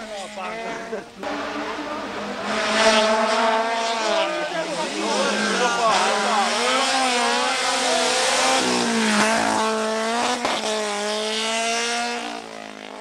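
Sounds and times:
race car engine: 0.0 - 13.0.

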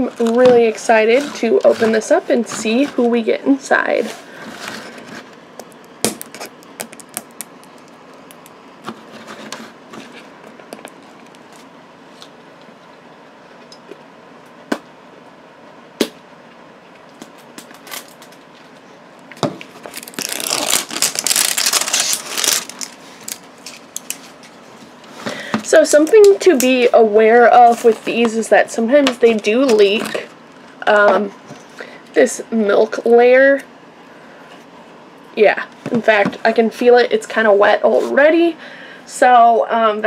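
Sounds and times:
packaging crinkling: 19.6 - 24.6
plastic packages clicking: 19.8 - 24.3.

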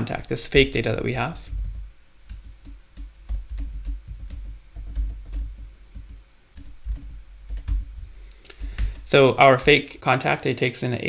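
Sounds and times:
typing on a keyboard: 1.6 - 8.0.

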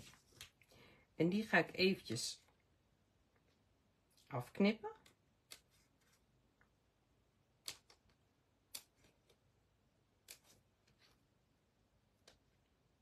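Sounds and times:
scissors snipping cardstock: 10.2 - 11.1.

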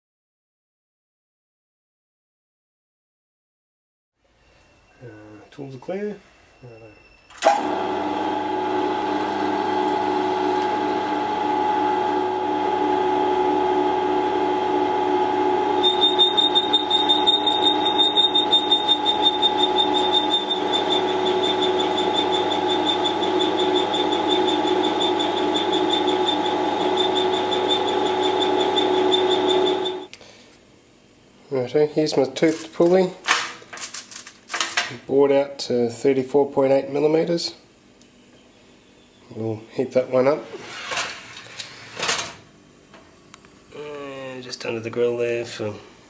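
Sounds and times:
milling machine spindle hum: 7.4 - 30.1
high pulsing whine: 9.0 - 30.1.

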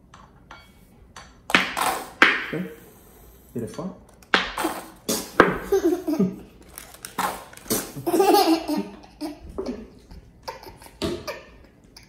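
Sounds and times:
young boy laughing: 5.4 - 6.6, 7.7 - 12.0
squeeze bottle sputtering: 6.6 - 8.0.

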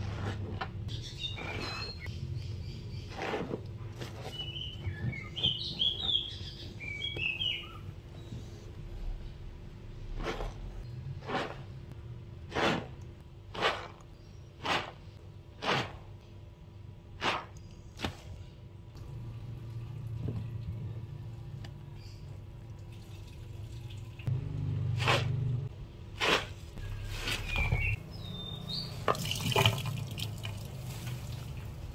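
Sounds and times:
sponge squelching in soapy water: 10.0 - 16.1
water splashing and dripping: 22.5 - 24.3, 29.0 - 31.9.

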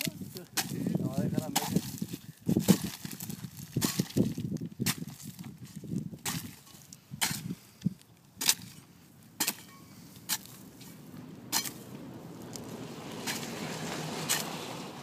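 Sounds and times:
blade chopping agave: 0.5 - 3.0, 6.2 - 7.5, 9.4 - 10.6, 11.5 - 11.8.

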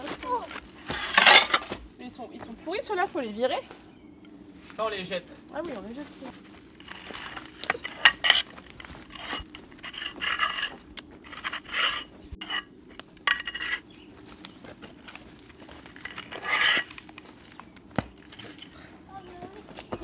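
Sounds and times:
ceramic tiles clinking and scraping: 0.5 - 1.7, 6.8 - 13.8, 15.9 - 16.9.

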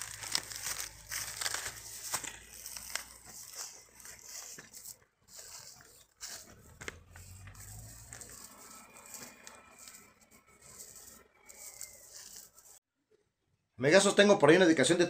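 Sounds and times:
rustling of a net: 0.0 - 12.8.

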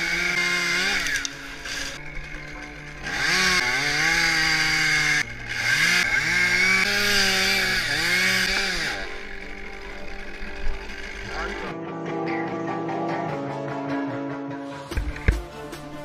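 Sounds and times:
chainsaw revving: 0.0 - 11.7.

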